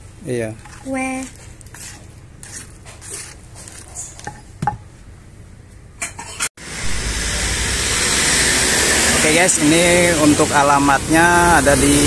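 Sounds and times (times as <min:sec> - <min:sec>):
spatula scraping stone mortar: 0:00.6 - 0:04.4
roadside traffic noise: 0:06.0 - 0:12.0.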